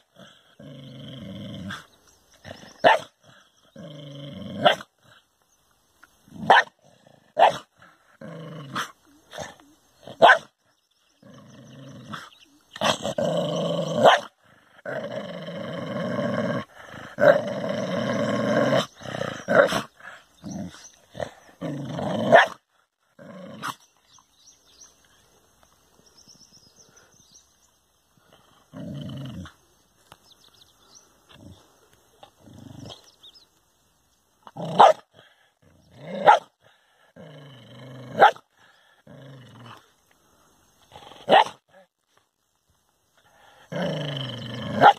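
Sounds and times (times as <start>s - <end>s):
dog snarling growl: 0.0s - 5.2s, 6.3s - 10.4s, 11.1s - 24.0s, 28.6s - 29.6s, 31.3s - 33.1s, 34.5s - 39.9s, 43.2s - 44.9s
dog barking: 2.8s - 3.1s, 6.4s - 6.7s, 7.4s - 7.7s, 10.2s - 10.5s, 14.0s - 14.3s, 22.3s - 22.6s, 34.8s - 35.0s, 36.2s - 36.5s, 38.2s - 38.4s, 41.3s - 41.6s.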